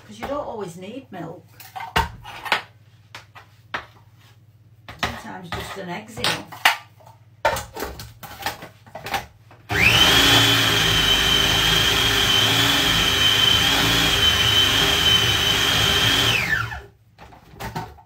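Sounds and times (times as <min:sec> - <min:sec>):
food processor motor whine: 0:09.7 - 0:16.9.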